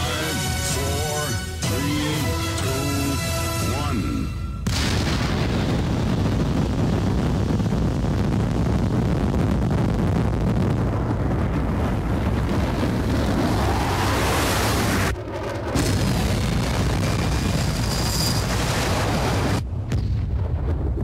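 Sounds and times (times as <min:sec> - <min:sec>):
rocket engine roaring: 0:00.0 - 0:21.0.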